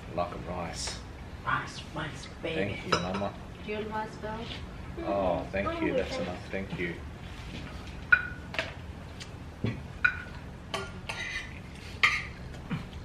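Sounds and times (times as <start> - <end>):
cutlery clinking against plates: 2.9 - 3.3, 10.0 - 12.4.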